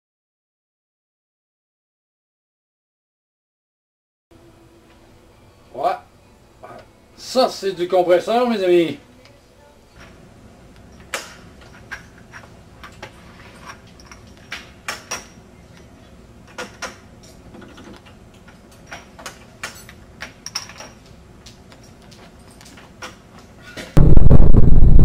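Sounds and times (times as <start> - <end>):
faint steady hum: 4.3 - 22.7.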